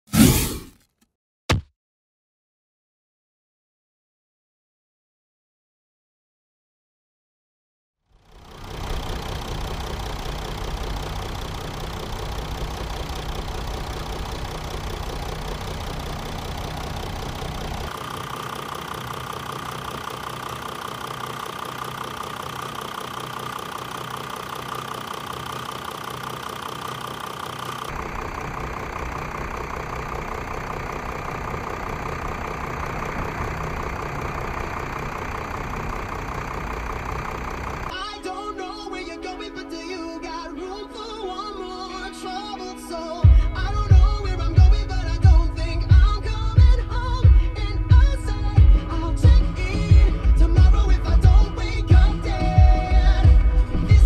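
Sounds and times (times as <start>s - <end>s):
diesel engine idling: 8.1s - 37.9s, 43.2s - 54.0s.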